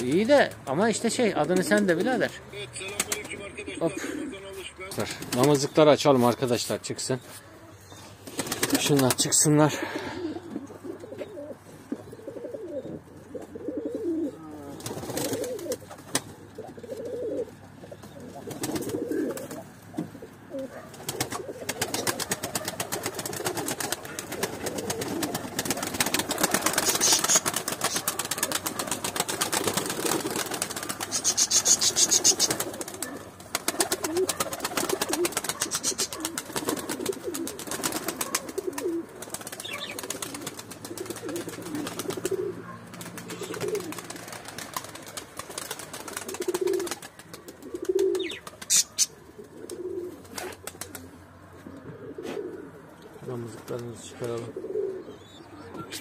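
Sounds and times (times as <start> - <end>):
pigeons cooing: 1.3 - 5.8, 7.3 - 56.0
wing beats: 1.4 - 5.9, 8.0 - 9.4, 20.9 - 51.2.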